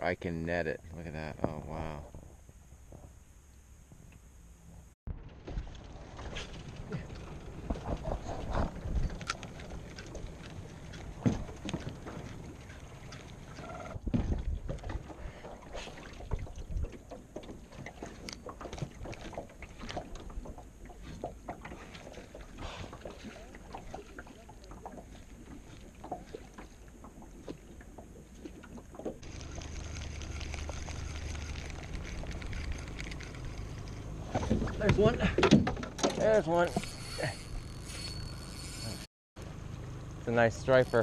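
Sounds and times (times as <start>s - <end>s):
low motor hum: 3.1s - 15.1s, 16.6s - 35.4s, 36.8s - 41.0s
water knocking against hull: 11.0s - 29.2s.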